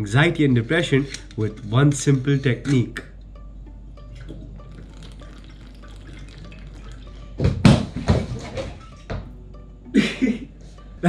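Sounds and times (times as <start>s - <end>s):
soft background music: 0.0s - 11.0s
water splashing: 4.1s - 9.0s.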